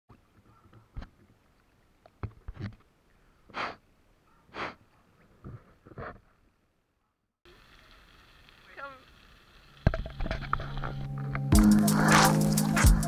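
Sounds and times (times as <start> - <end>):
rushing breaths at microphone: 4.5 - 4.9.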